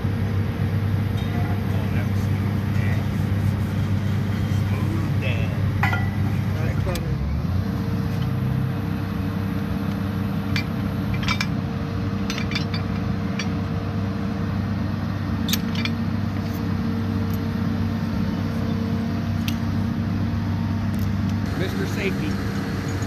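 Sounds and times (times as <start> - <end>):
diesel engine idling: 0.0 - 23.0
metal shackles clinking: 5.8 - 7.0, 10.5 - 11.6, 12.2 - 13.6, 15.4 - 17.5.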